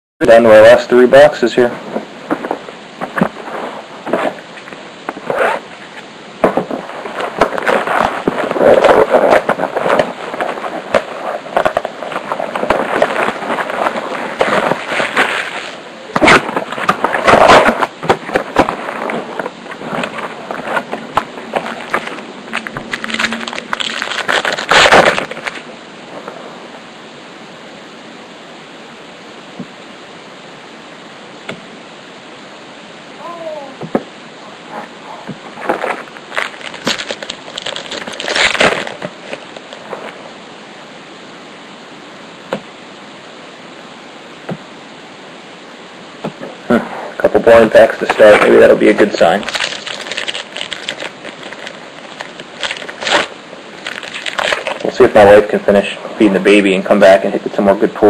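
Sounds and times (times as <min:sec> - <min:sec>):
steady low hiss: 0:00.2 - 0:58.0
rustling and handling: 0:01.8 - 0:26.4, 0:34.7 - 0:40.2, 0:46.3 - 0:55.6
plastic wrapping crinkling and tearing: 0:06.7 - 0:25.7, 0:35.6 - 0:40.1, 0:47.4 - 0:55.9.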